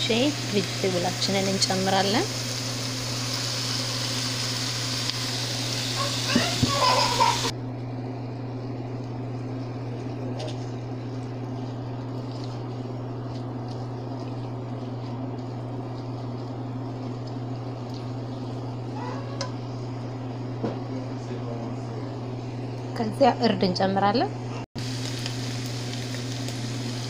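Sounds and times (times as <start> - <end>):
vegetables sizzling in oil: 0.0 - 7.5, 24.8 - 27.0.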